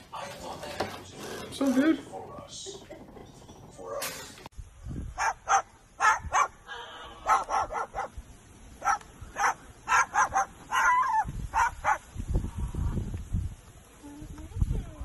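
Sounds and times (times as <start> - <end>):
cockatoo barking like a dog: 5.1 - 8.2, 8.8 - 12.1.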